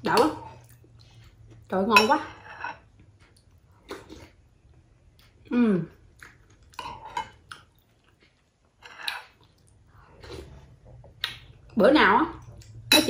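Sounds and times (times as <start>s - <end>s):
metal spoon scraping glass bowl: 2.0s - 2.8s
chewing: 6.0s - 11.5s.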